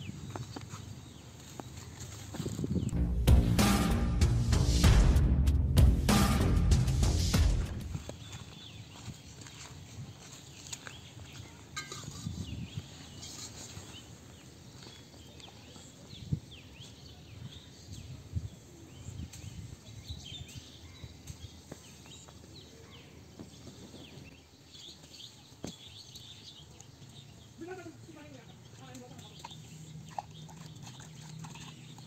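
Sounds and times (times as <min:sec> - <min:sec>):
small birds chirping: 0:00.0 - 0:03.0, 0:08.0 - 0:32.0.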